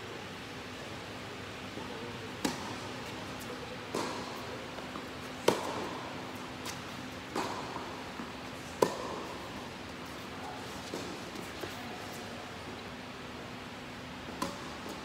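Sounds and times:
tennis ball hit by rackets: 2.4s - 9.5s, 14.4s - 15.0s.

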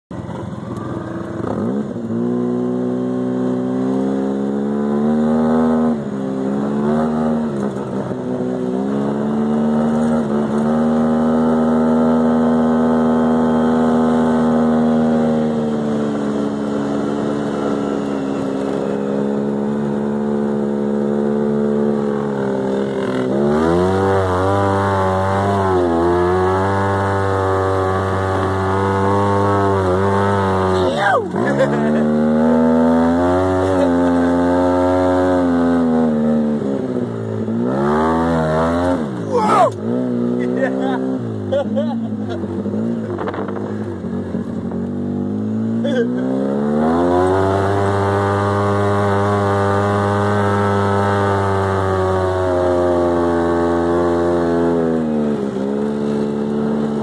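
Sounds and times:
engine revving: 0.8s - 57.0s.

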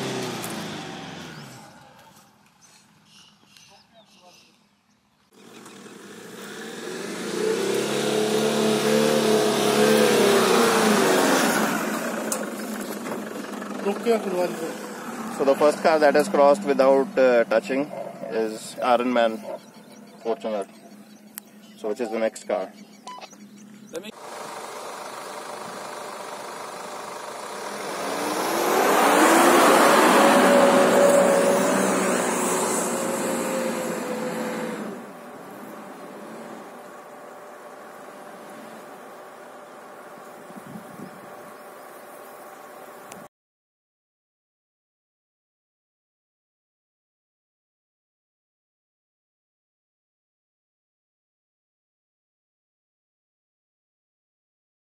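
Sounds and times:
diesel engine pulling through sand: 0.0s - 2.2s, 5.3s - 22.0s, 23.4s - 43.3s.

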